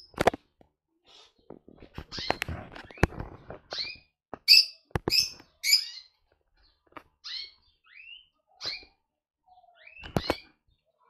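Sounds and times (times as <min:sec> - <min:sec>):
sharp clicks and knocks: 0:00.1 - 0:00.7
small birds chirping: 0:00.9 - 0:11.0.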